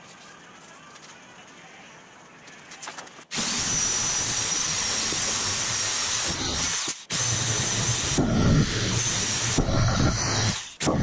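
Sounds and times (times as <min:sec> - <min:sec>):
power shear motor whine: 0:03.4 - 0:11.0.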